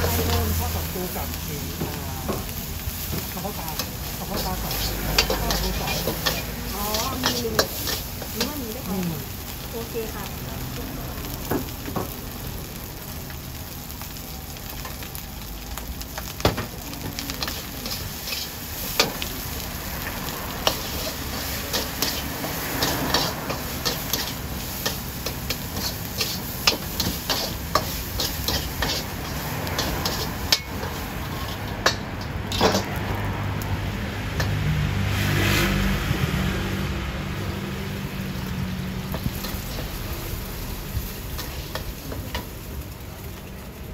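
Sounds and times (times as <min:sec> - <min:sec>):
rice sizzling in a wok: 0:00.0 - 0:43.9
metal spatula clanking on pan: 0:03.8 - 0:08.5, 0:22.8 - 0:33.0.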